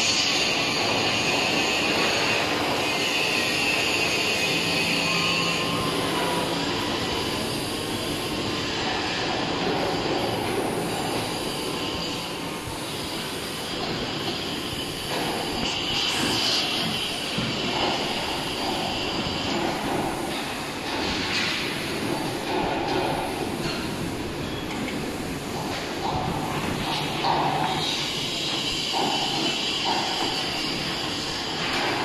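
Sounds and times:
machinery: 0:00.0 - 0:32.0
welding hiss: 0:00.0 - 0:32.0.

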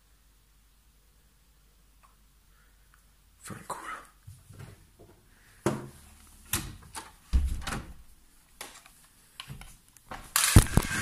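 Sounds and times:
irregular knocks and bumps: 0:04.3 - 0:08.0.

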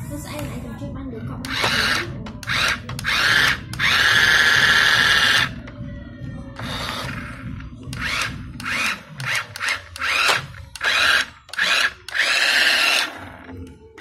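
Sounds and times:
toy truck motor whirring: 0:01.5 - 0:05.6, 0:06.6 - 0:07.4, 0:08.0 - 0:13.7.

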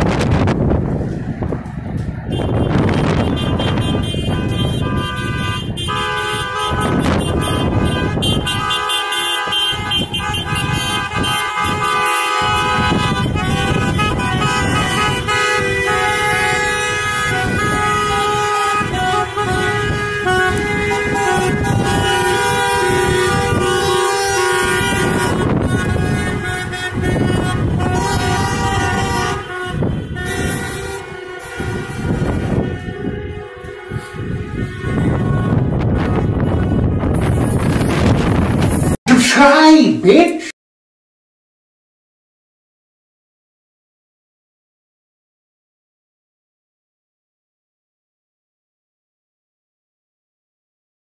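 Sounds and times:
low traffic rumble: 0:00.0 - 0:39.4
car horns honking: 0:02.2 - 0:39.4.

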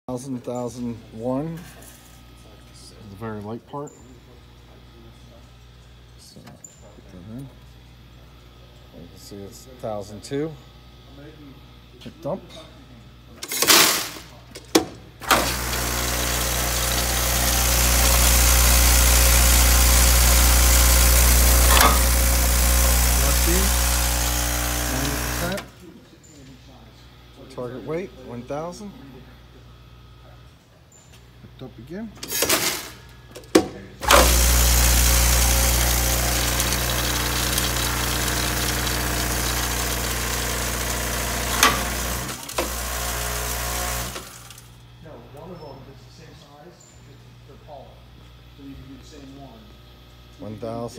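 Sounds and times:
low electric hum: 0:00.1 - 0:50.9
vibratory feeder humming: 0:15.2 - 0:25.8, 0:34.0 - 0:45.6.

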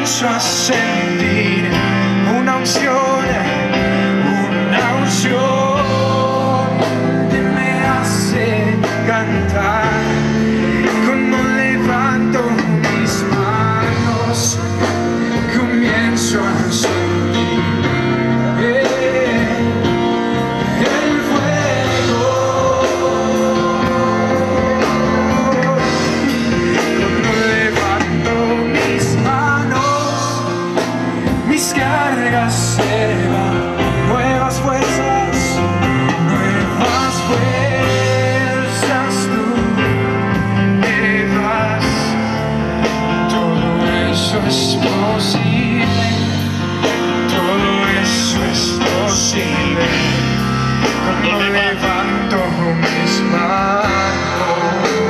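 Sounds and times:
live band playing: 0:00.0 - 0:55.0
person singing: 0:00.0 - 0:55.0.

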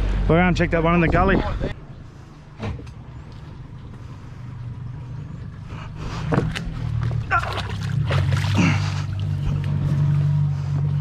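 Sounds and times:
boat motor running: 0:03.2 - 0:11.0.

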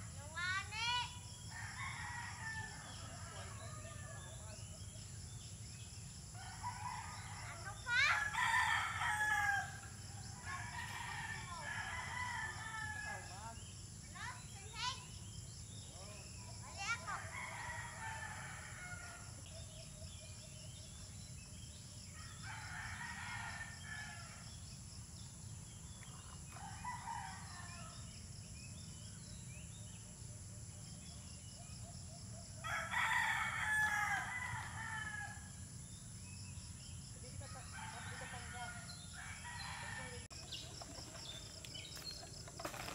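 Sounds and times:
rooster crowing: 0:06.4 - 0:09.9, 0:32.6 - 0:35.6.

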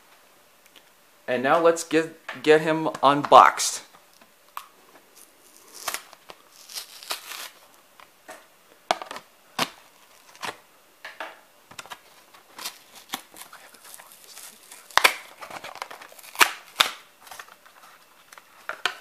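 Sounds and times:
plastic blister pack crackling: 0:05.2 - 0:07.7, 0:11.8 - 0:17.7.

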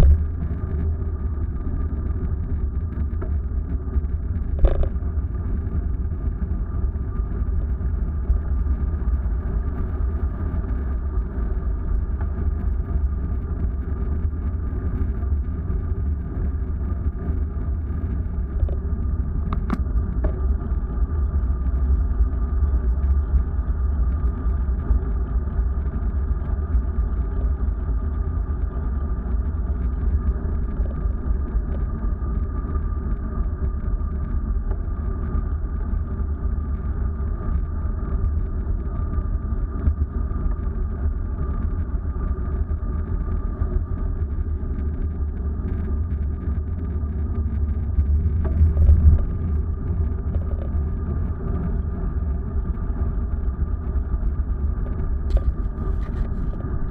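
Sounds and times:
vehicle engine and road noise: 0:00.0 - 0:07.0, 0:44.4 - 0:56.9
faint steady whine: 0:00.0 - 0:56.9.

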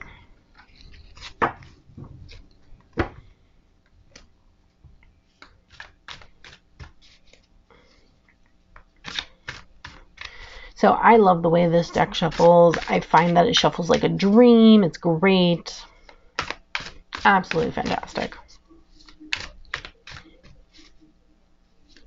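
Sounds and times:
cards being shuffled: 0:00.6 - 0:02.5, 0:05.3 - 0:07.5, 0:09.0 - 0:10.5, 0:11.8 - 0:14.2, 0:16.4 - 0:21.1.

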